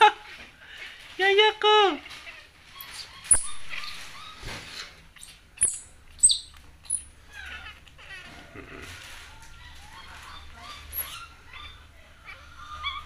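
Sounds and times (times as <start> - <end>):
monkey high squeaks: 2.7 - 8.1, 10.0 - 11.8.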